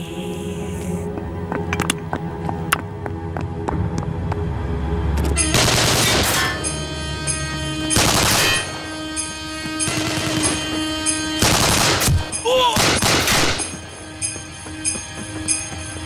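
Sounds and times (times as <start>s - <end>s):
film score sustained tones: 0.0s - 16.0s
automatic weapon fire: 8.0s - 8.7s, 11.4s - 12.2s, 12.8s - 13.6s.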